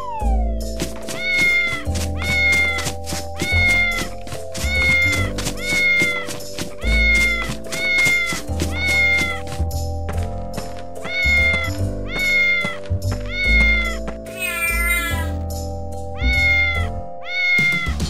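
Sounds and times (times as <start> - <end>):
cartoon cat meow: 0.0 - 0.5, 1.1 - 9.4, 11.1 - 12.7, 13.3 - 15.4, 16.2 - 18.0
children's music with pulsing bass: 0.0 - 18.0.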